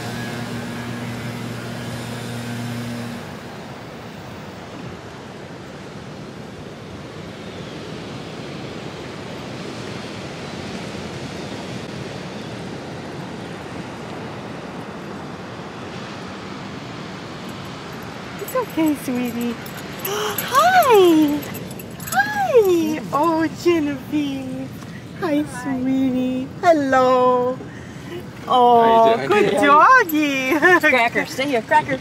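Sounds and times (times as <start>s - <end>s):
ocean surf: 3.3s - 18.4s.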